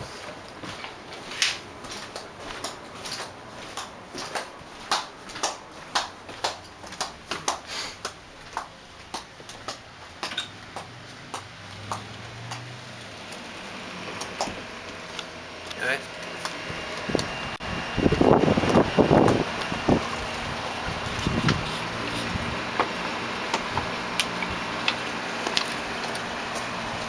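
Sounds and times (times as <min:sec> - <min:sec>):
footsteps: 0:00.0 - 0:15.2.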